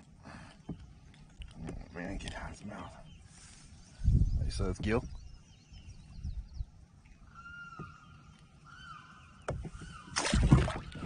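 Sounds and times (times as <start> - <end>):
faint bird calls: 0.0 - 10.5
fish splashing into water: 10.1 - 11.0.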